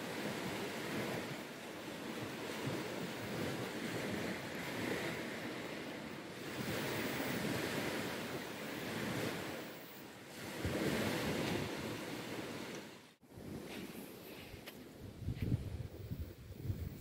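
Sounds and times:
surf washing on beach: 0.0 - 17.0
wind on microphone: 0.0 - 17.0.

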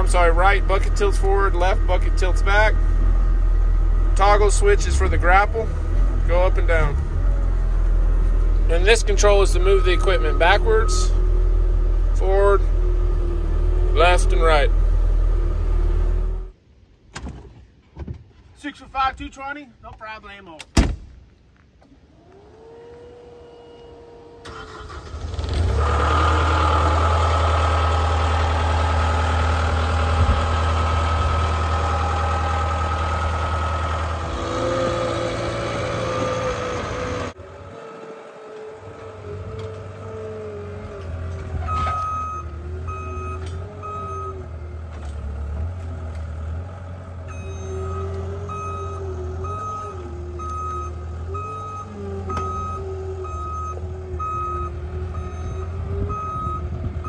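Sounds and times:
diesel engine running: 0.0 - 16.6, 22.2 - 57.0
backup alarm beeping: 9.4 - 11.2, 41.7 - 44.4, 47.3 - 56.7.

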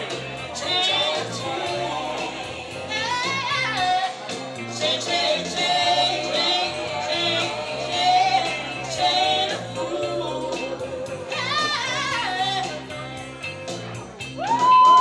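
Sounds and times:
instrumental backing music: 0.0 - 15.0
woman singing into microphone: 6.1 - 13.0.

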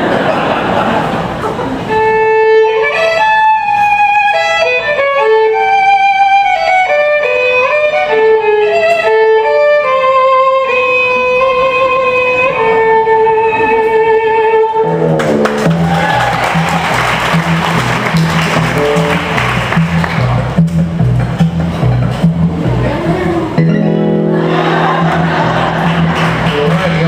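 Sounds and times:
solo violin melody: 1.8 - 15.0.

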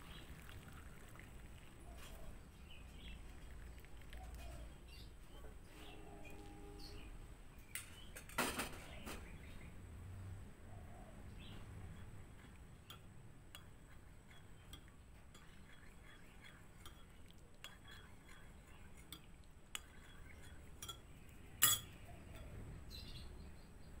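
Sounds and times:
teaspoon clinking in glass mug: 12.0 - 22.6.

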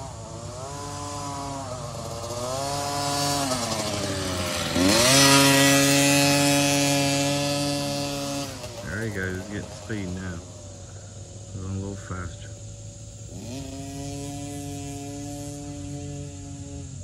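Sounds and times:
dirt bike engine buzzing: 0.0 - 17.0.

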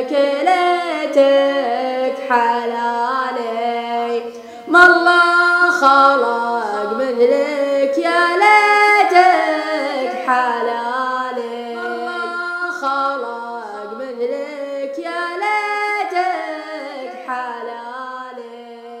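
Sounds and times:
voices chanting in harmony: 11.3 - 14.1.

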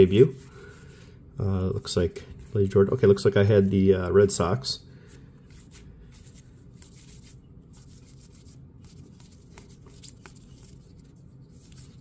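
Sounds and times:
cards sliding and flicking: 5.5 - 12.0.

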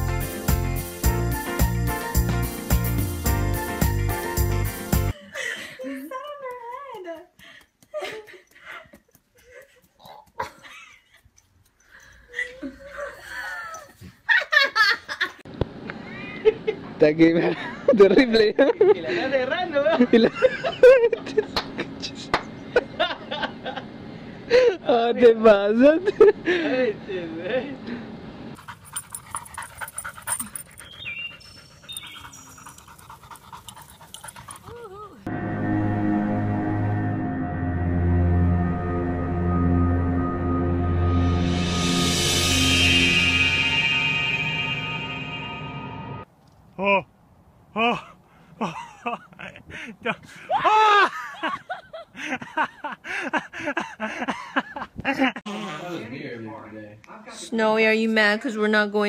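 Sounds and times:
dog whining: 29.4 - 32.8.

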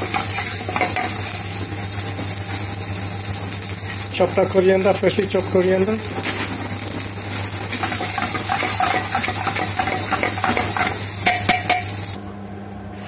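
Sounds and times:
rice frying hiss: 0.0 - 12.2
spoon clanking on pan: 7.7 - 12.0
spoon scraping frying pan: 7.7 - 12.0.

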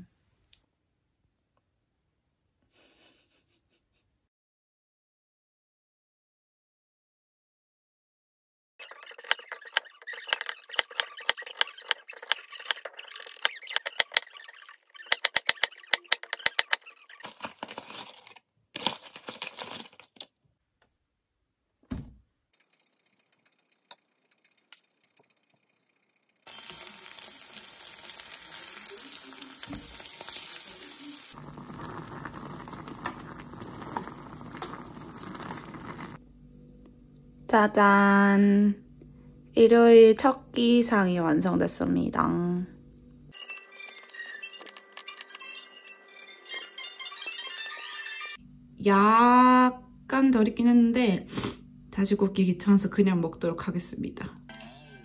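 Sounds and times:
pancakes sizzling in pan: 26.5 - 36.2.

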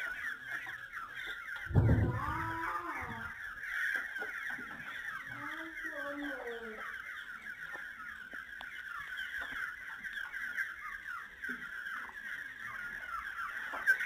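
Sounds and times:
chicks peeping: 0.0 - 14.0.

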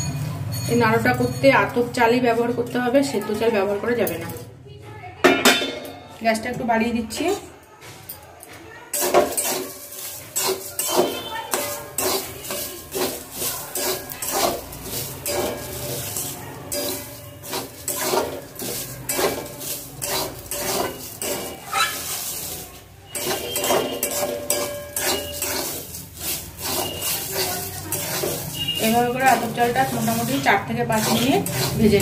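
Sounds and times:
metal spatula scraping steel pan: 8.9 - 32.0
rice grains rattling in pan: 9.0 - 32.0.

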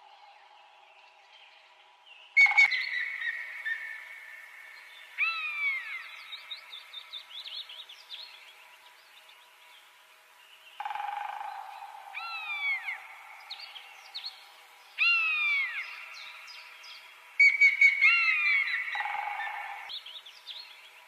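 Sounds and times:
whistled bird-like calls: 2.4 - 4.0.

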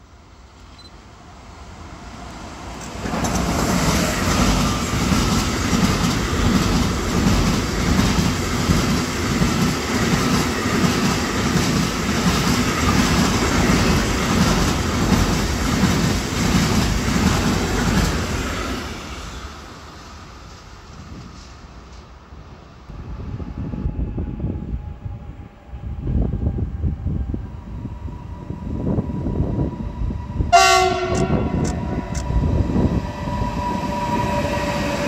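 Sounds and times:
freight train passing: 0.0 - 35.0
wheels clickety-clack on rails: 2.8 - 18.6.

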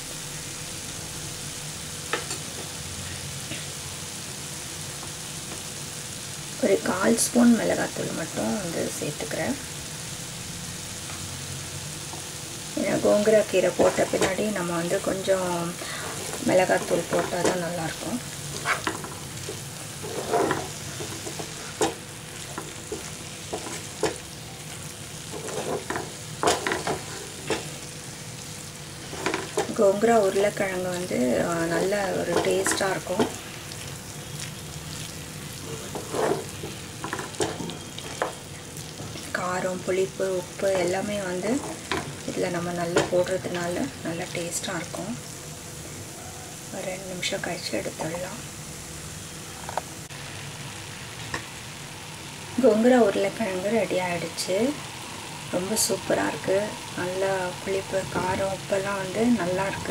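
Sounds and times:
food sizzling in oil: 0.0 - 59.9
wooden spatula scraping pan: 18.4 - 24.2, 25.2 - 27.7, 29.0 - 29.9, 35.6 - 38.4.

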